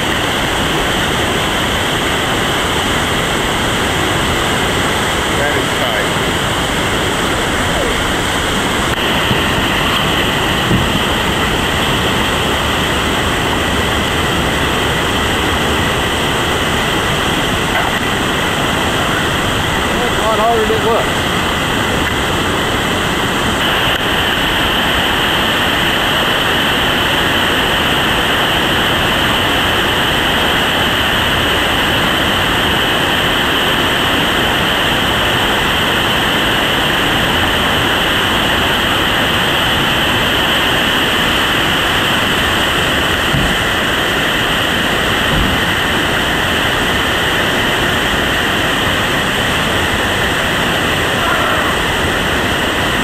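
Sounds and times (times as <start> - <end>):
whitewater rapids rushing: 0.0 - 53.0.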